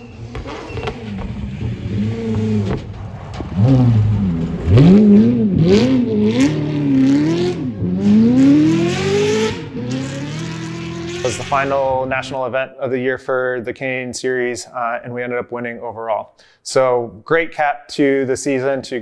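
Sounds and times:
rally car engine revving: 0:00.0 - 0:12.3.

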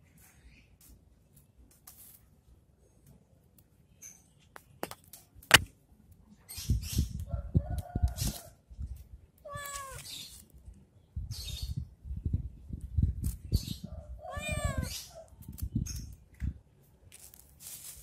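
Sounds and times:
cat meowing: 0:09.4 - 0:10.1, 0:14.2 - 0:15.0.

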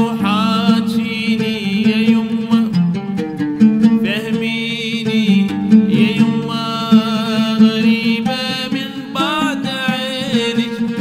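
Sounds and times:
oud plucked: 0:00.0 - 0:11.0
held melody with vibrato: 0:05.4 - 0:08.9.

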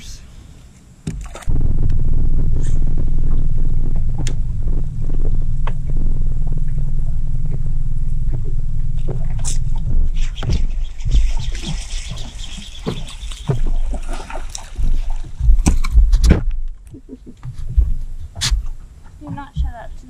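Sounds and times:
loud low rumble: 0:01.5 - 0:18.8
fish thrashing at water surface: 0:10.2 - 0:16.5.

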